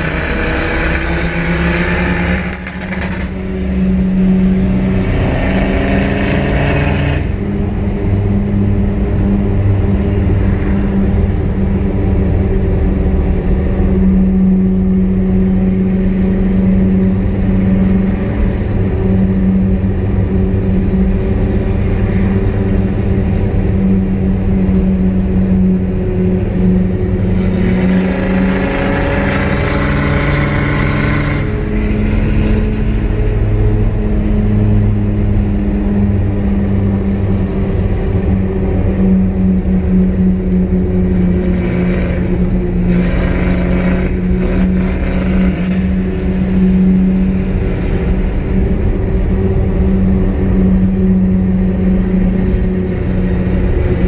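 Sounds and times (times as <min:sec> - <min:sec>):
diesel engine accelerating: 0:00.0 - 0:54.0.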